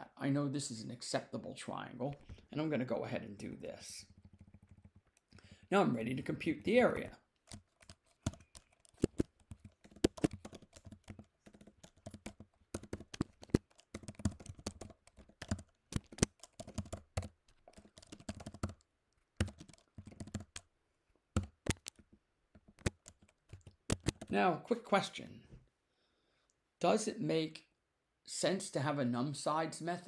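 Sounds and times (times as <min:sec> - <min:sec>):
typing on computer keyboard: 0:04.0 - 0:05.5, 0:07.4 - 0:20.7, 0:21.4 - 0:22.0, 0:22.6 - 0:24.3.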